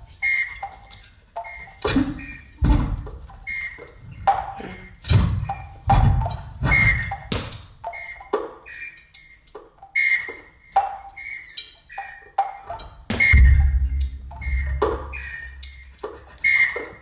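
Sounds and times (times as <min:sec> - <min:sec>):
percussive hits with ringing tones: 0:12.4 - 0:16.3
low thud: 0:13.1 - 0:15.9.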